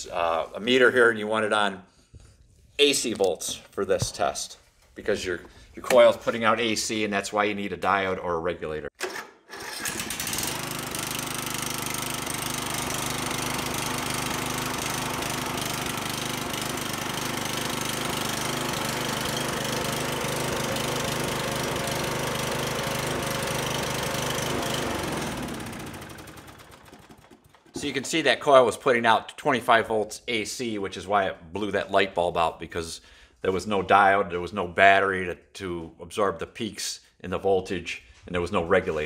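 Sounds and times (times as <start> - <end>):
mower engine running: 9.6 - 28.1.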